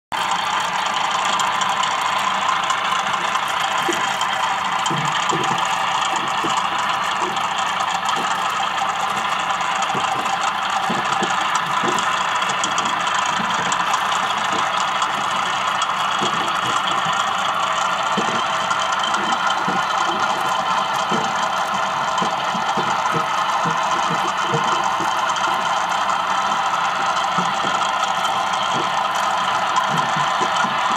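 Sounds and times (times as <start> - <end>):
diesel engine sound through small speaker: 0.1 - 30.9.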